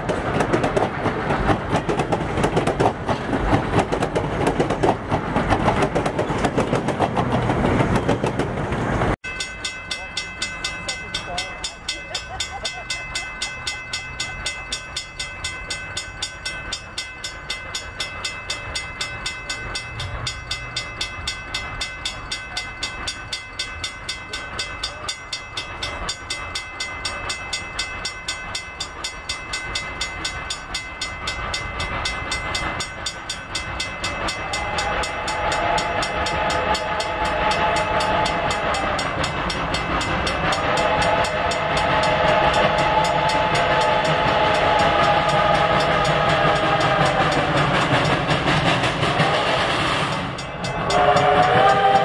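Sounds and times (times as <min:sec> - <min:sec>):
crossing bell ringing: 0:00.0 - 0:52.0
train approaching: 0:00.0 - 0:52.0
steam whistle blasts: 0:34.3 - 0:39.2, 0:40.2 - 0:47.9, 0:49.0 - 0:52.0.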